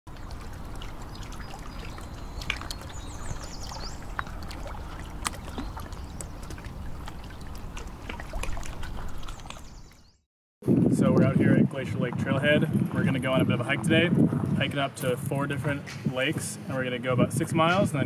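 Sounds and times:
water trickling over rocks: 0.1 - 10.1
small water drips and splashes: 0.1 - 10.2.

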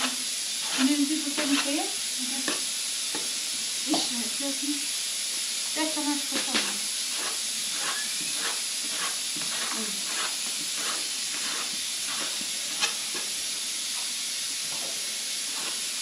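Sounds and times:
steady hiss: 0.0 - 16.0
knife cutting dough on board: 6.5 - 13.0.

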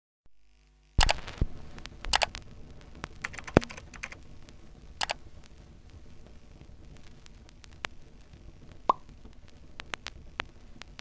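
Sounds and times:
computer keyboard clicks: 2.1 - 2.3, 3.2 - 4.2.

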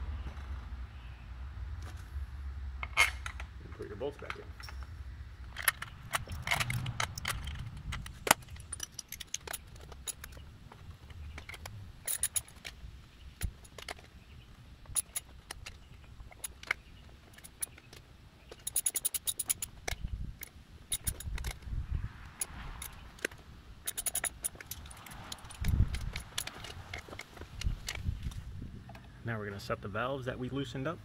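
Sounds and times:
bolts and tools clinking on metal: 2.8 - 21.7, 22.3 - 28.2.

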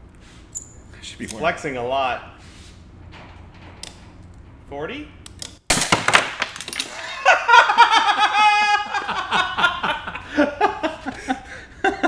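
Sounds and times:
man laughing: 6.9 - 12.0.

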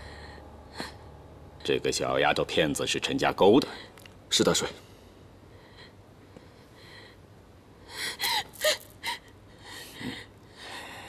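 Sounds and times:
woman gasping and breathing: 7.9 - 11.0.

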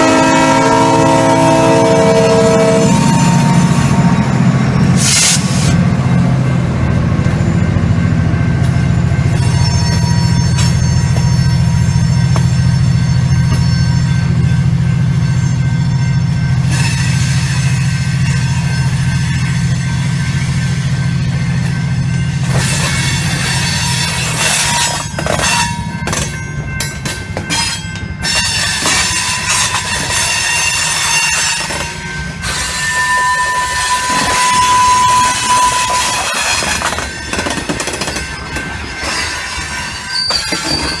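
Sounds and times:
freight train wheels rumbling: 0.0 - 41.0
high wheel squeal: 27.6 - 36.8, 38.1 - 41.0.

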